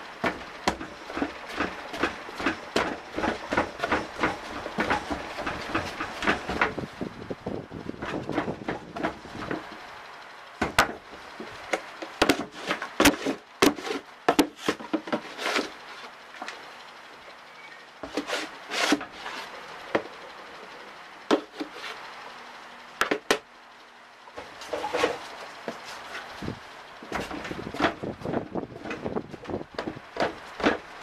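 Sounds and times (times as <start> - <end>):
plastic scoop scraping: 12.3 - 15.8.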